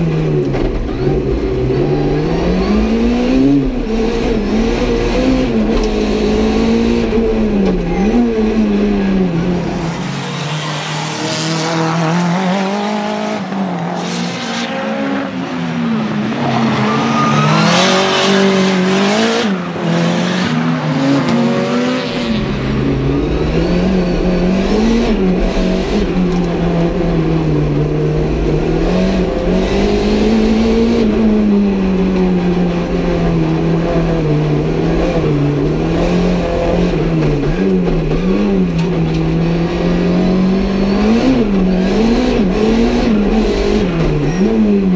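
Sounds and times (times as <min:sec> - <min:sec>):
turbocharged car engine revving: 0:00.0 - 0:44.9
race car passing by: 0:08.4 - 0:26.5.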